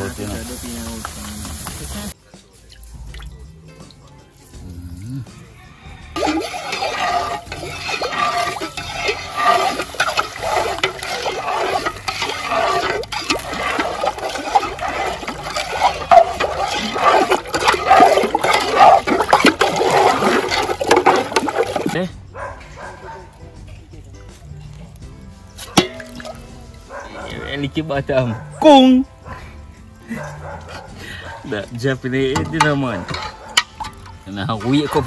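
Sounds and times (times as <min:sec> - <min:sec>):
liquid sloshing in stirred pot: 0:06.2 - 0:22.1, 0:25.6 - 0:26.6.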